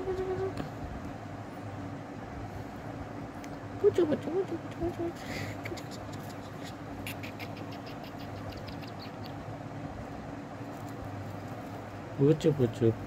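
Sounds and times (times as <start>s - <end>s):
steady low hum: 0.0s - 13.0s
rustle: 10.0s - 13.0s.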